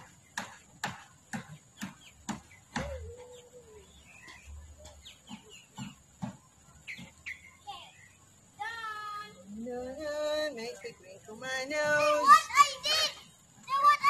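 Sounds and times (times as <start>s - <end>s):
chicken clucking: 1.6s - 7.5s
chicken wavering call: 2.7s - 4.5s.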